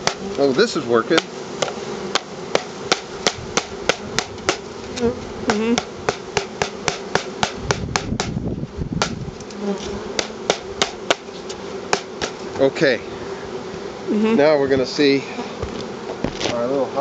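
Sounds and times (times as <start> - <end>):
honeybees buzzing: 0.0 - 17.0
sharp knocks on wooden box: 1.1 - 4.7, 5.8 - 8.4, 9.0 - 9.2, 9.8 - 11.3, 11.9 - 12.7.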